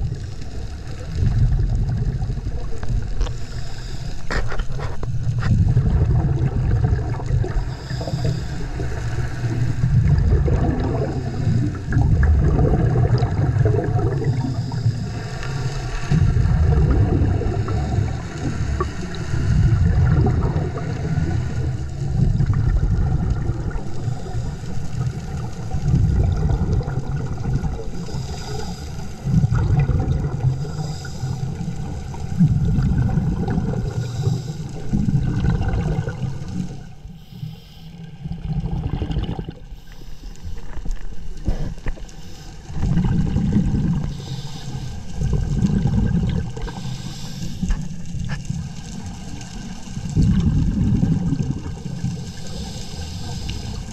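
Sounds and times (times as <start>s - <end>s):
exhaled bubbles rumbling underwater: 0.0s - 53.9s
regulator hiss: 3.3s - 4.3s, 7.6s - 9.8s, 27.9s - 29.3s, 30.6s - 32.2s, 36.8s - 38.3s, 41.6s - 42.8s, 44.0s - 45.3s, 46.6s - 48.1s, 51.8s - 53.9s.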